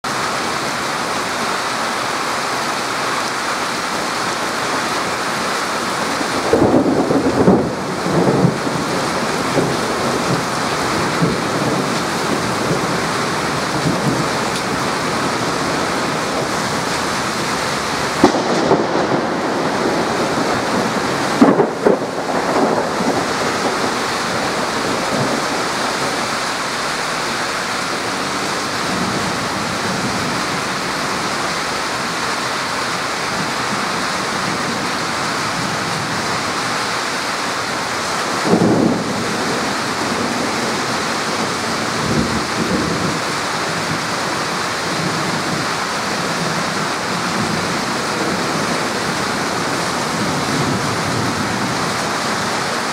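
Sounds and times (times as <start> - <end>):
heavy rain on street: 0.0 - 52.9
thunder: 6.2 - 26.6, 38.2 - 44.1.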